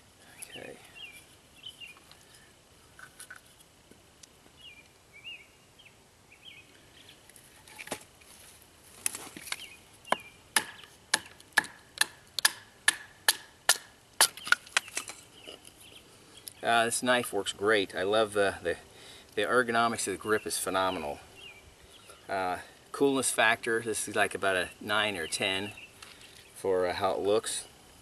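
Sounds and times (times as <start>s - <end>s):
bird chirps: 4.6s - 7.2s, 9.5s - 11.0s
knife chopping wood: 10.1s - 14.9s.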